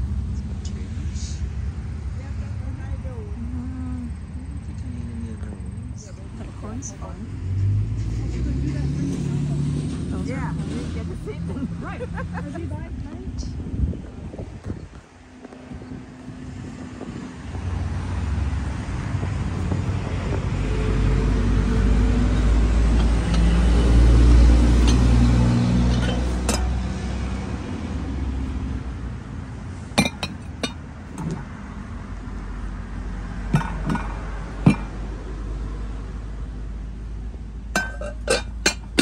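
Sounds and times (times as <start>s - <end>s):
car engine and road rumble: 0.0s - 39.0s
sharp clicks and clinks: 25.9s - 26.8s, 30.0s - 31.5s, 33.5s - 34.9s, 37.8s - 39.0s.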